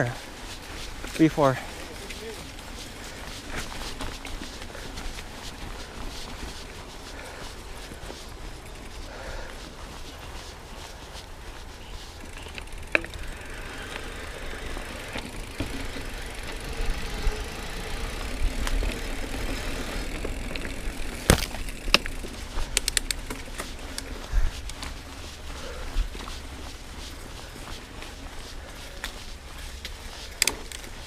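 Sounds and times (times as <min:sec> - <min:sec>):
bike rattling over bumps: 0:00.0 - 0:31.0
bike tyres rolling on dirt: 0:00.0 - 0:31.0.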